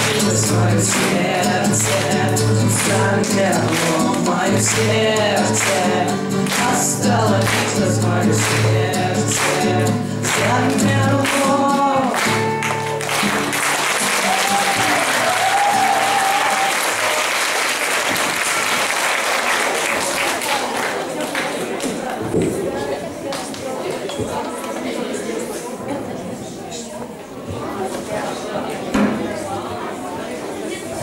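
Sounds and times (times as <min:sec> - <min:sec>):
boys singing with guitars: 0:00.0 - 0:13.5
audience applause: 0:08.4 - 0:22.2.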